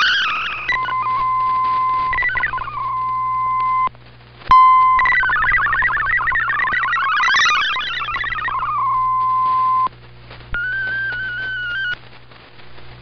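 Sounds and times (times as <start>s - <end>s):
warbling radio data tones: 0.0s - 3.9s, 4.5s - 13.0s
steady single beep tone: 4.5s - 6.1s.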